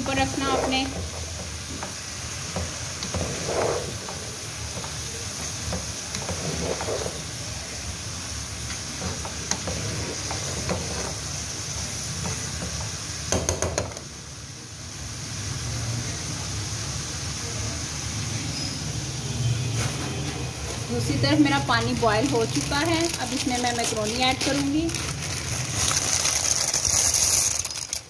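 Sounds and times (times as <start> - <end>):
spatula stirring and scraping: 0.0 - 7.9, 8.5 - 13.1, 21.4 - 28.0
vegetables sizzling in a wok: 0.0 - 28.0.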